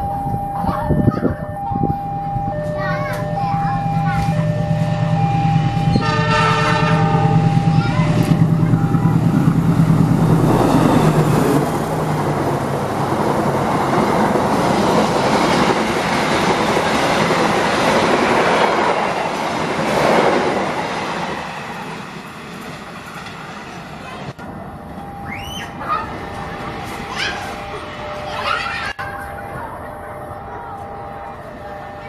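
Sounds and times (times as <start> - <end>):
locomotive engine drone: 0.0 - 32.0
train wheels rattling on rails: 0.7 - 32.0
train horn: 5.9 - 7.4.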